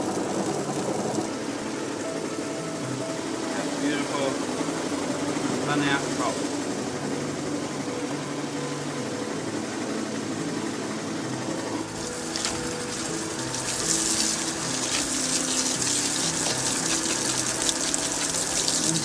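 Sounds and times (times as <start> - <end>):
water pouring into plastic drum: 0.0 - 1.3, 12.0 - 19.0
steady machine hum: 0.0 - 19.0.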